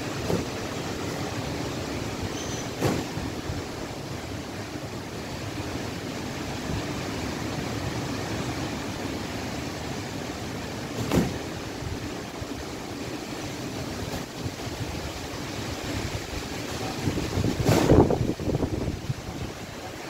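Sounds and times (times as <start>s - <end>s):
short thump: 2.8s - 3.2s, 11.0s - 11.4s
wind rushing across microphone: 14.3s - 19.8s.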